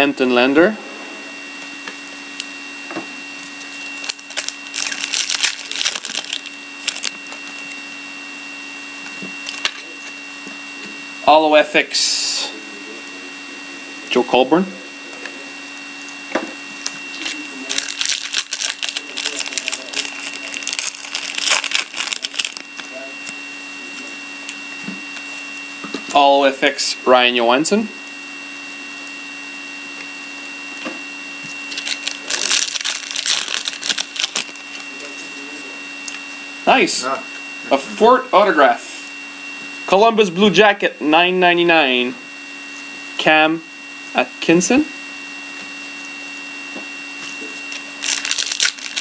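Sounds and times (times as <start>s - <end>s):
faint steady hum: 0.0s - 49.0s
wrapper tearing and crinkling: 3.6s - 7.8s, 9.4s - 9.8s, 16.8s - 22.9s, 31.7s - 34.8s, 47.7s - 49.0s
cards being handled: 3.7s - 7.5s, 17.1s - 22.9s, 31.7s - 34.8s, 47.7s - 49.0s.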